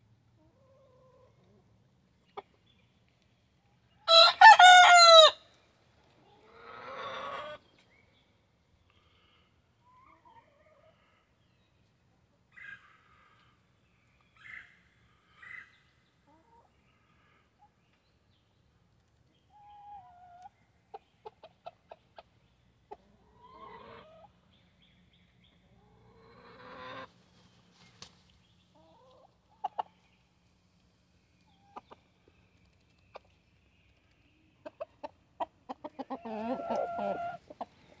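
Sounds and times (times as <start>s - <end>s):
chickens clucking: 0.4s - 2.7s, 6.0s - 7.8s, 19.0s - 24.7s, 25.4s - 27.2s, 27.8s - 30.2s, 31.3s - 38.0s.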